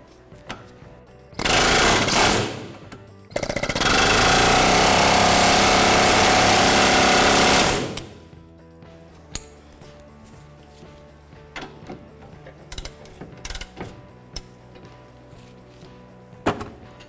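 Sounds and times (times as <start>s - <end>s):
pneumatic air chisel hammering: 1.4s - 8.2s.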